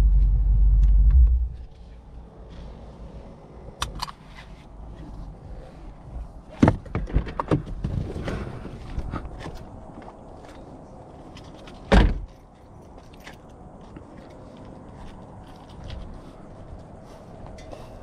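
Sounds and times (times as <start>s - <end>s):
clicks and knocks in car cabin: 6.5s - 8.1s.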